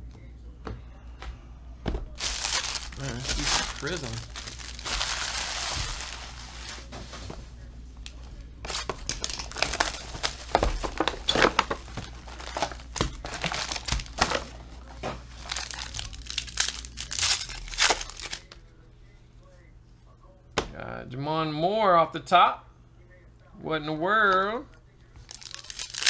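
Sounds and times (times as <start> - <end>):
foil wrappers crinkling: 2.1 - 6.9, 8.6 - 18.6, 25.2 - 26.0.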